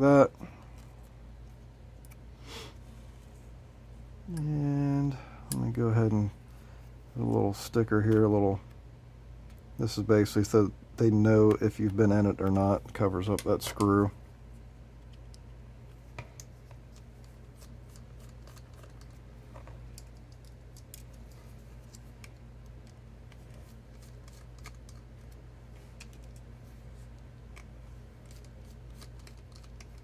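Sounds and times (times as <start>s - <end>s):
steady low hum: 0.0s - 30.0s
hands handling plastic parts: 16.1s - 30.0s.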